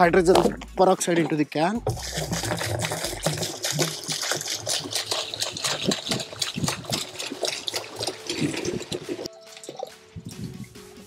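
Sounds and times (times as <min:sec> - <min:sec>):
liquid splashing into plastic drum: 0:01.8 - 0:10.0.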